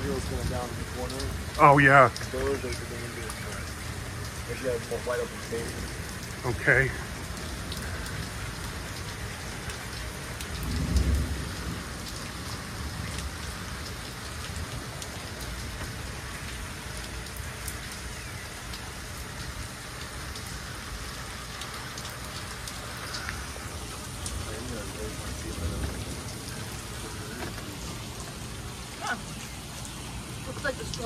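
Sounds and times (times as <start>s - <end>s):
low rumble of thunder: 0.0s - 16.9s, 23.4s - 29.0s
rain falling: 0.0s - 31.0s
water dripping: 0.0s - 31.0s.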